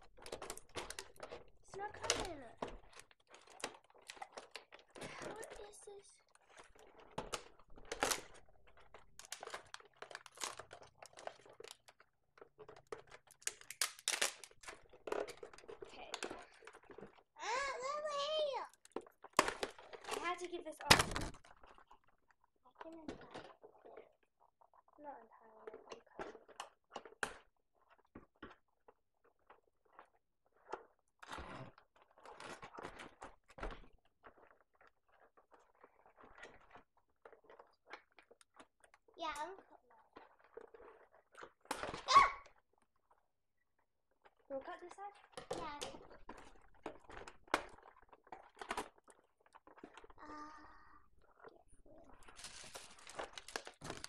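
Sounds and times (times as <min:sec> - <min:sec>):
toy packaging crinkling: 0:00.0 - 0:22.2, 0:44.4 - 0:54.0.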